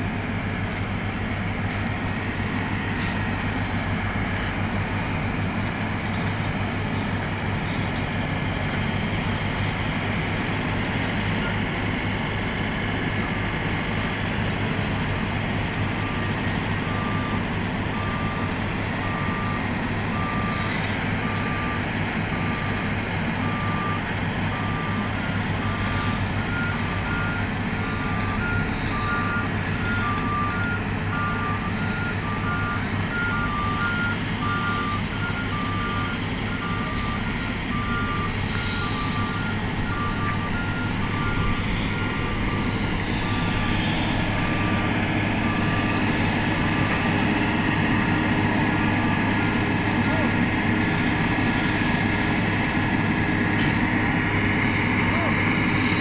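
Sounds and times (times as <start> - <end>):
diesel engines running: 0.0 - 56.0
backup alarm beeping: 24.6 - 50.4
higher-pitched alarm: 35.5 - 51.1.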